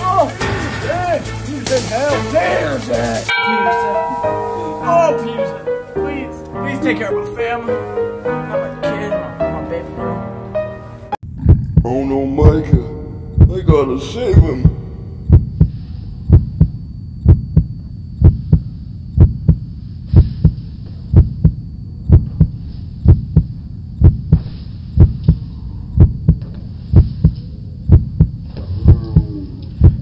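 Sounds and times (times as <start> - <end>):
heartbeat thumps: 11.2 - 30.0.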